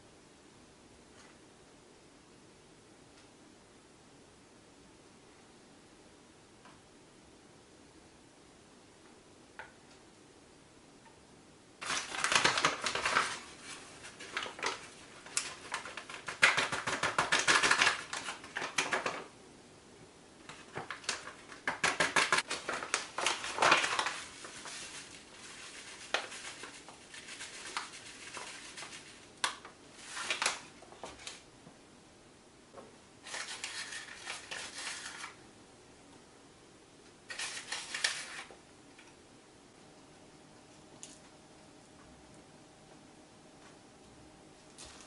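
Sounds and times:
paper bags crinkling: 0:11.8 - 0:19.3, 0:20.4 - 0:31.4, 0:33.2 - 0:35.4, 0:37.3 - 0:38.5.

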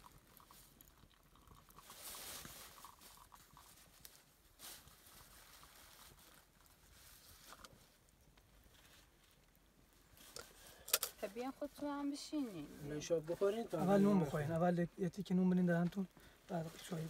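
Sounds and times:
tea trickling into glass: 0:00.0 - 0:03.8.

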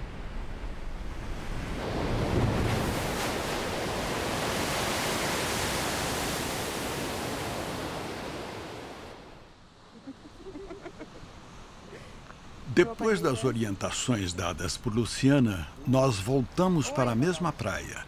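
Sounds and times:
surf breaking on rocky shore: 0:01.0 - 0:09.3.

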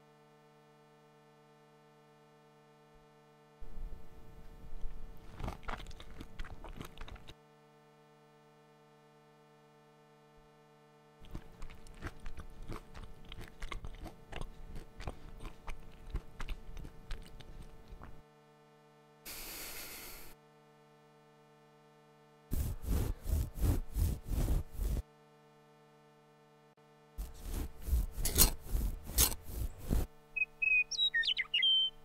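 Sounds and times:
faint steady hum: 0:00.0 - 0:32.0
crunching and chewing: 0:04.6 - 0:07.4, 0:11.2 - 0:18.2, 0:27.2 - 0:30.1
short hiss: 0:19.3 - 0:20.4.

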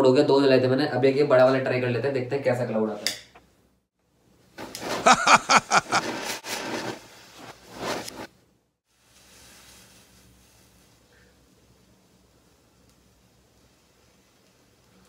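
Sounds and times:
smoke bomb crackling hiss: 0:08.9 - 0:14.7
faint steady hiss: 0:08.9 - 0:15.0.

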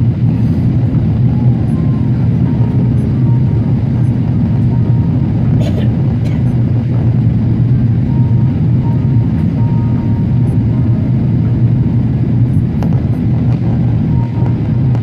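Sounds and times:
jet airliner cabin rumble: 0:00.0 - 0:15.0.

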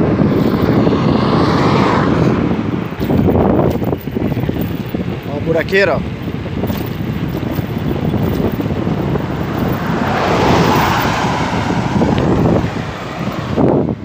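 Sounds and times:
vehicle passing close by: 0:00.0 - 0:14.0
wind rushing over microphone: 0:00.0 - 0:14.0
tyres rumbling over broken asphalt: 0:02.6 - 0:13.6.

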